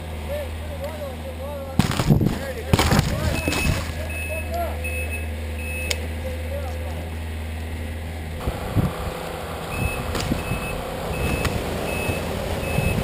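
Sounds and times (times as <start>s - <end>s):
branches rustling: 0.8s - 6.2s
wind buffeting microphone: 1.8s - 3.8s, 8.4s - 13.0s.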